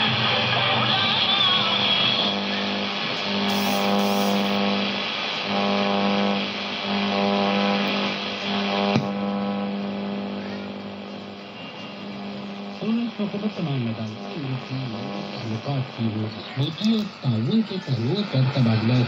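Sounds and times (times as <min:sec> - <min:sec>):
radio static hiss: 0:00.0 - 0:19.0
low buzz: 0:02.4 - 0:16.2.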